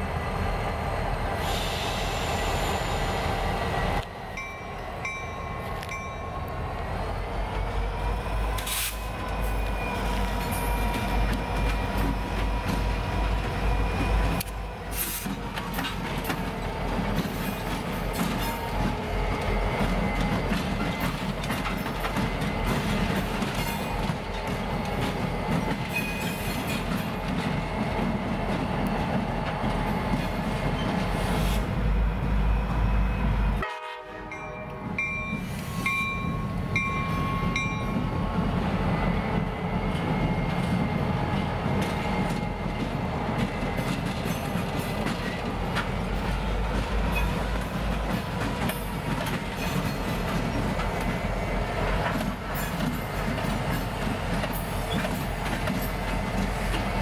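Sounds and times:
diesel locomotives running: 0:00.0 - 0:57.0
wheels clicking over rail joints: 0:14.0 - 0:31.0, 0:52.0 - 0:56.9.

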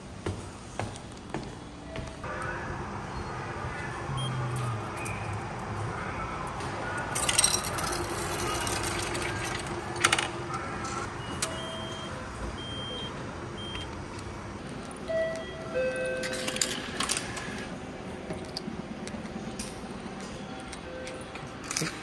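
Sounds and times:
short electronic beeps: 0:11.2 - 0:13.9.

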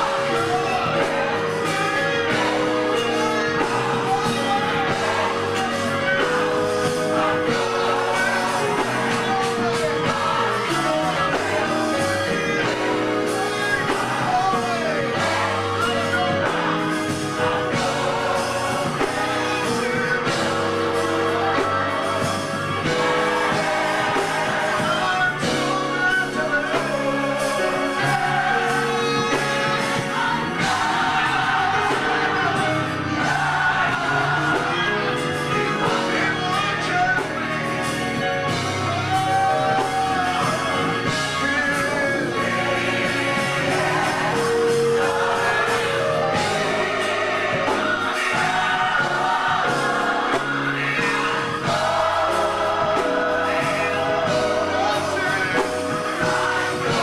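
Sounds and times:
choir singing: 0:00.0 - 0:57.0
keyboard chords: 0:00.0 - 0:57.0
man singing into a microphone: 0:24.8 - 0:30.5, 0:39.0 - 0:42.7.

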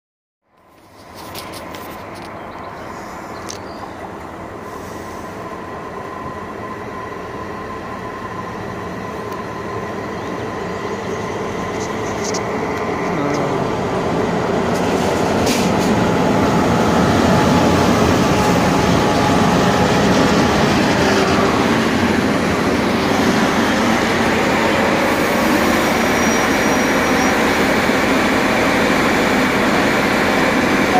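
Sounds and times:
locomotive engine rumble: 0:00.7 - 0:30.9
train wheels on rails: 0:00.7 - 0:30.9.

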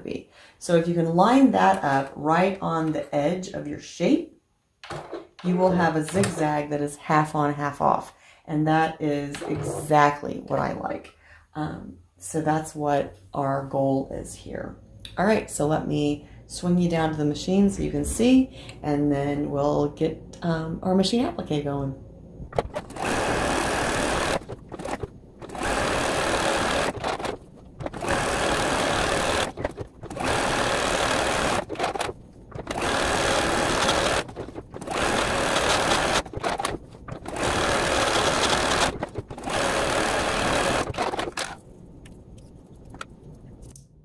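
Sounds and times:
sewing machine stitching: 0:22.6 - 0:41.6.

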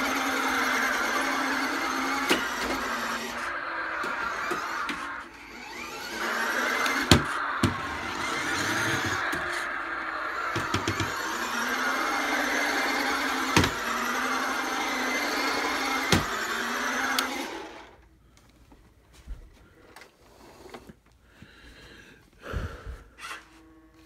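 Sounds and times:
toy car motor whining: 0:00.0 - 0:18.0.

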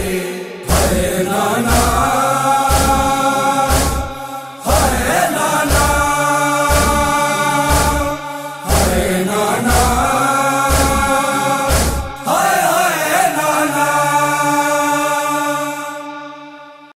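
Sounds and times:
heavy low beats: 0:00.0 - 0:12.3
man singing a lament: 0:00.0 - 0:16.9.

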